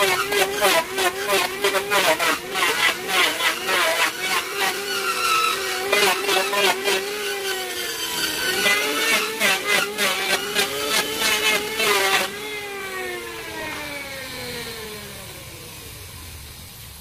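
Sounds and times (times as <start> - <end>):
sanding disc rasping on wood: 0.0 - 12.6
angle grinder motor whine: 0.0 - 17.0.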